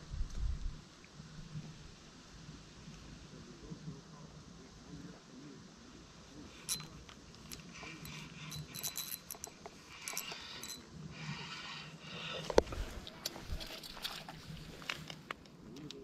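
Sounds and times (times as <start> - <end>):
fishing reel clicking rattle: 6.6 - 10.9.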